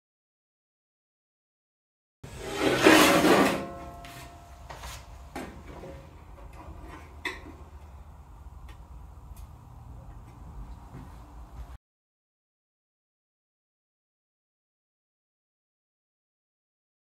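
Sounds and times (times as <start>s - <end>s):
sheet metal scraping on metal: 2.3s - 4.5s.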